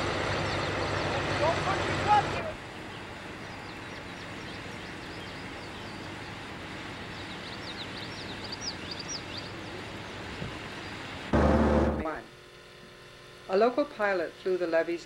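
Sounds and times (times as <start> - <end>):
outdoor background noise: 0.0 - 15.0
small birds chirping: 0.2 - 11.3.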